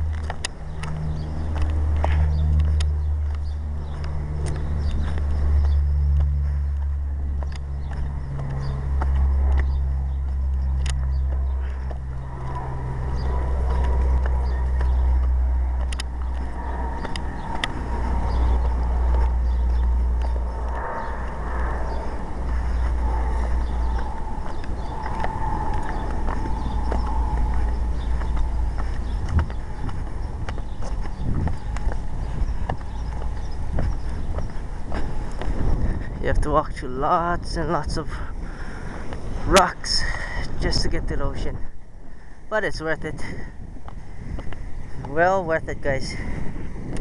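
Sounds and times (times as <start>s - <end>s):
footsteps on loose rock: 0.0s - 21.8s, 22.4s - 36.2s
wind buffeting microphone: 0.0s - 47.0s.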